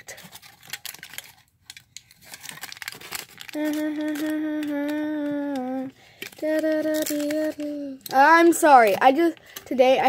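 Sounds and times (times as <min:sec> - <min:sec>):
aluminium foil crinkling: 0:00.0 - 0:10.0
girl humming a held note: 0:03.5 - 0:08.0.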